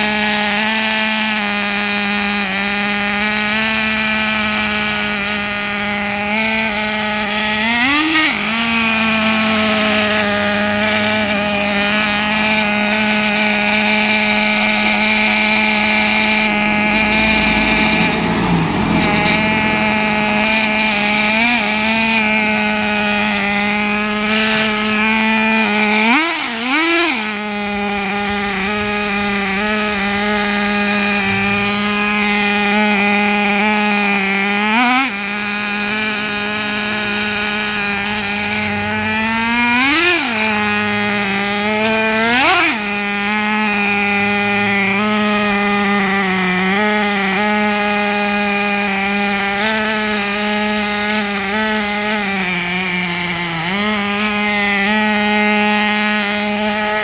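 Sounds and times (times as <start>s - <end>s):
engine throttle blips: 0.0s - 57.0s
nitro engine droning: 0.0s - 57.0s.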